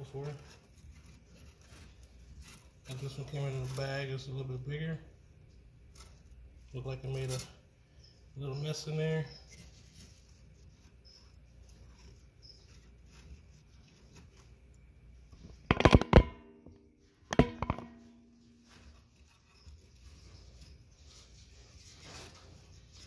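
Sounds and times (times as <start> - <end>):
faint rustling handling noise: 0.0 - 15.7, 16.5 - 23.0
sharp clattering knocks: 15.4 - 19.6.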